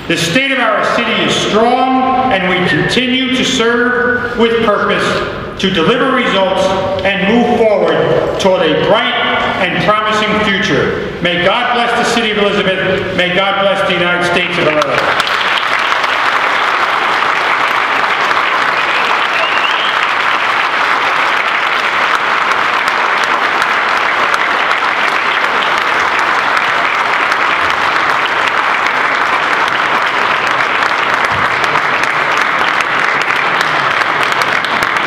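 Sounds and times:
audience applauding: 0:14.7 - 0:35.0.

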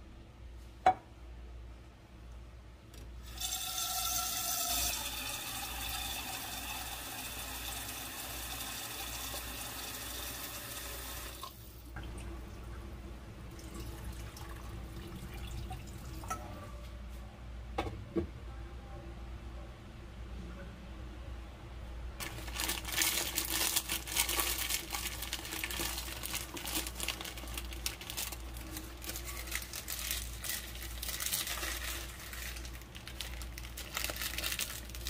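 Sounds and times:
tap water running into metal pot: 0:03.2 - 0:12.3.

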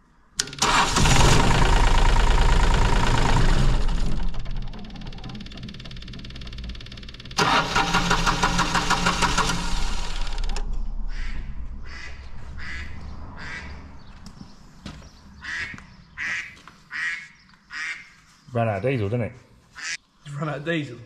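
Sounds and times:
diesel engine running: 0:00.6 - 0:14.3
duck quacking: 0:11.1 - 0:13.8, 0:15.4 - 0:18.1, 0:19.8 - 0:20.0.

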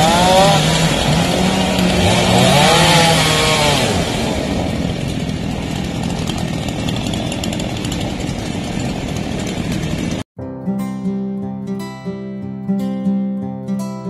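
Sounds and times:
chainsaw engine revving: 0:00.0 - 0:10.2.

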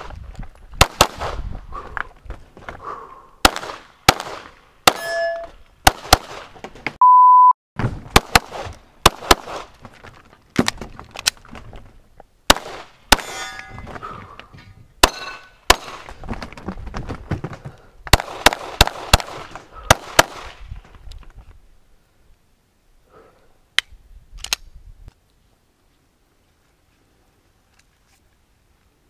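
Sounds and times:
rapid pistol fire: 0:03.4 - 0:04.5, 0:18.1 - 0:20.6
steel targets ringing: 0:04.9 - 0:05.6, 0:13.2 - 0:13.9, 0:15.1 - 0:15.6.

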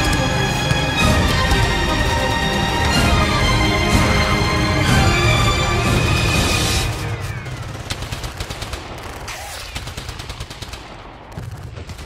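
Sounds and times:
music: 0:00.0 - 0:07.8.

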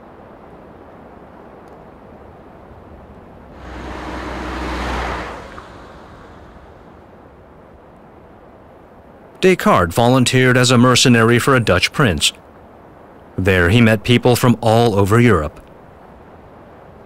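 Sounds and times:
low steady hum: 0:03.4 - 0:08.2
soft rushing whoosh: 0:03.6 - 0:07.5.

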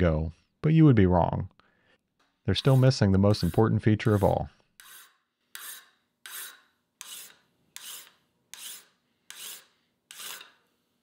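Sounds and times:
file rasping on metal: 0:02.5 - 0:10.6.

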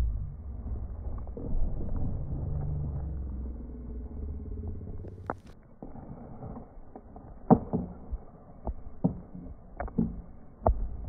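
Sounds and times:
low rumble: 0:00.0 - 0:05.9.

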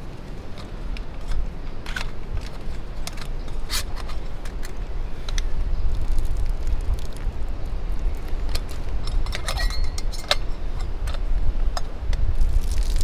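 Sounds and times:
steady low rumble: 0:00.0 - 0:13.0
metal pot clinking: 0:09.0 - 0:10.9.

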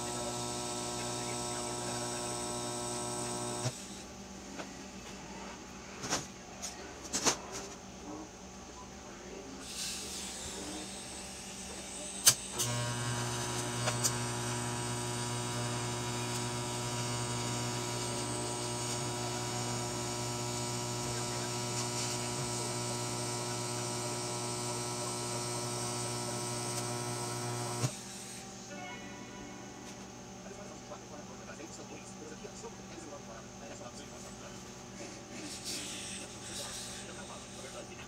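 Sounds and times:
welding arc buzzing: 0:00.0 - 0:04.0, 0:11.9 - 0:28.0.

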